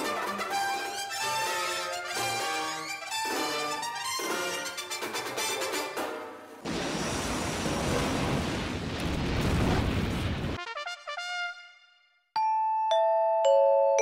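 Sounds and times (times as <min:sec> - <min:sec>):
brass fanfare: 0:00.0 - 0:06.5, 0:10.6 - 0:12.2
explosion rumble with crackling: 0:06.6 - 0:10.6.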